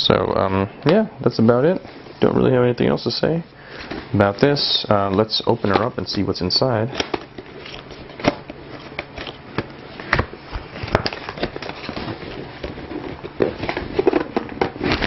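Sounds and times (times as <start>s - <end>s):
cardboard packaging rustling: 3.6s - 15.0s.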